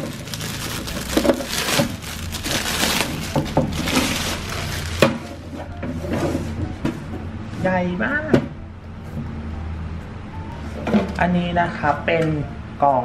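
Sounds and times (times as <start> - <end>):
plastic film crinkling: 0.0 - 5.7.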